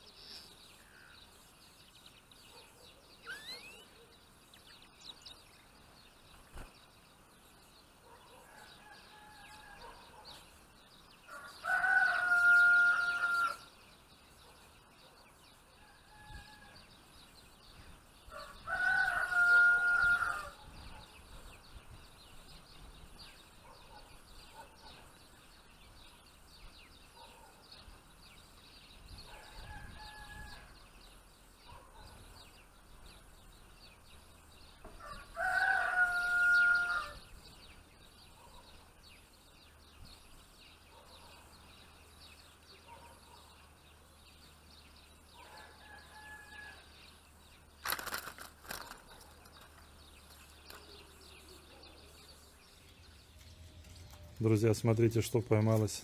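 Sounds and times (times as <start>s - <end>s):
small birds chirping: 0.0s - 56.0s
fainter distant crowing: 11.3s - 13.7s, 18.3s - 20.6s, 34.9s - 37.2s
rooster crowing: 11.3s - 13.7s, 18.3s - 20.6s, 29.4s - 30.8s, 35.0s - 37.2s, 45.5s - 46.9s.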